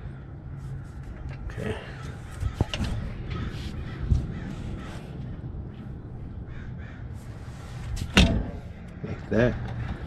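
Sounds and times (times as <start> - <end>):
distant birds cawing: 0.0 - 10.0
dull metal clunk: 8.0 - 8.7.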